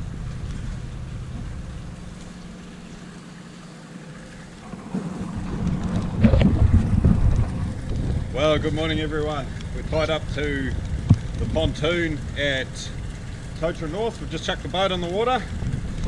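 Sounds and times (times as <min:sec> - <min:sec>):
wind buffeting microphone: 0:04.4 - 0:16.0.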